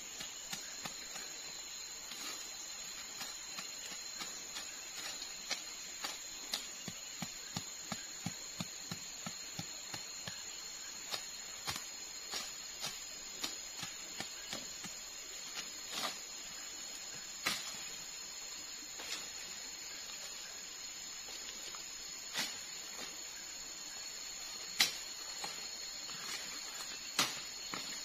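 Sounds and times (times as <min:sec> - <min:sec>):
high-pitched insect drone: 0:00.0 - 0:28.0
soft knocks on forest floor: 0:17.4 - 0:18.0, 0:26.3 - 0:28.0.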